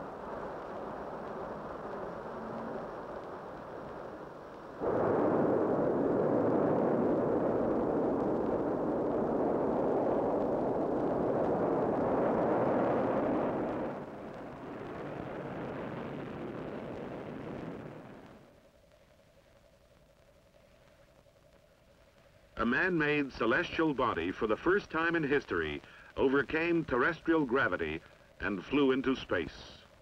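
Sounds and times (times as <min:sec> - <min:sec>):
rocket engines roaring: 0:00.0 - 0:18.6.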